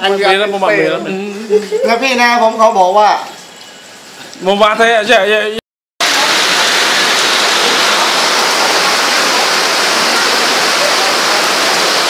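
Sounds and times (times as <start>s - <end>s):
heavy rain splashing on ground: 6.0s - 12.0s.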